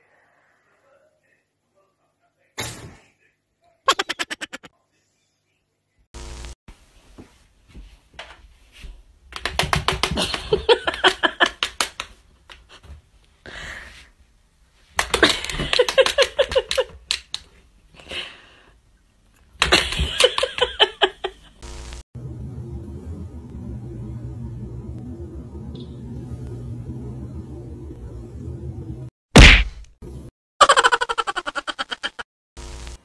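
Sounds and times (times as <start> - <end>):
person laughing: 3.9 - 4.7, 10.1 - 11.8, 15.1 - 17.2, 19.6 - 21.6, 30.6 - 32.2.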